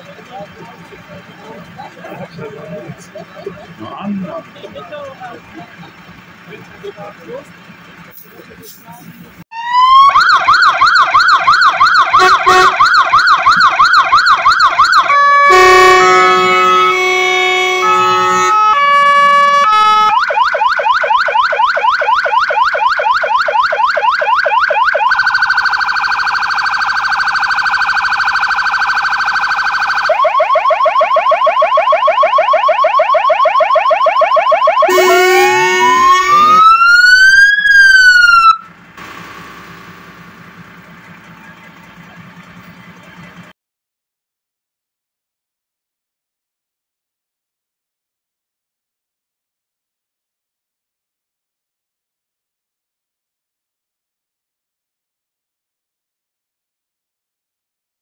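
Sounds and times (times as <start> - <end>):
fire engine electronic siren: 9.5 - 42.5.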